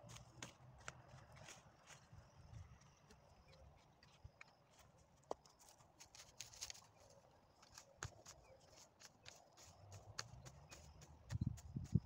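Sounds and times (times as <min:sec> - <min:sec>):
hoe chopping dry weeds: 0:07.6 - 0:12.0.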